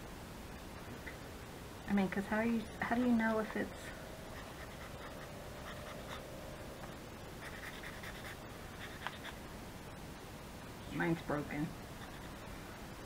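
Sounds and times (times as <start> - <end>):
marker pen scratching on paper: 7.4 - 9.4, 12.0 - 12.4.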